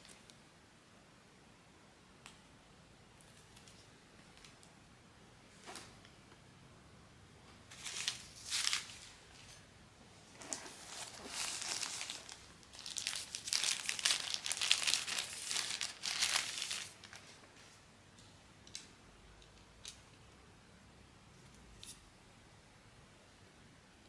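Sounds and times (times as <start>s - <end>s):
wrapper crinkling: 7.7s - 9.1s, 10.3s - 17.4s.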